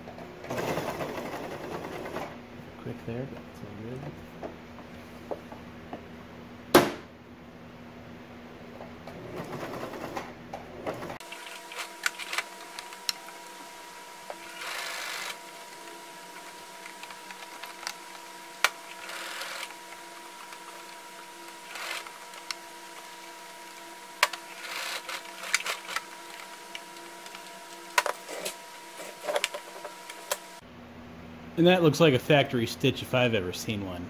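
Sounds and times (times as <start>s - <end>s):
sewing machine stitching: 0.4s - 2.4s, 9.1s - 13.5s, 14.2s - 30.4s.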